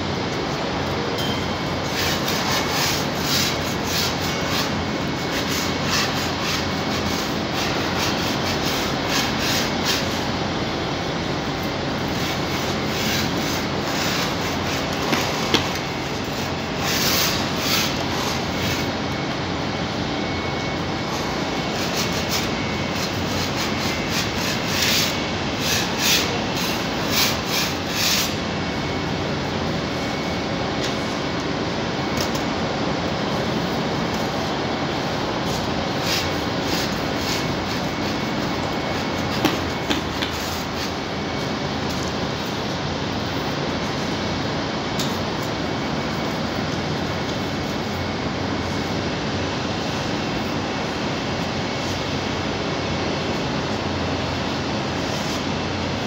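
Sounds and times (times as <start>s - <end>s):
steady machine drone: 0.0s - 56.0s
paint rollers rasping on ceiling: 1.7s - 19.3s, 20.9s - 28.6s, 33.1s - 52.4s.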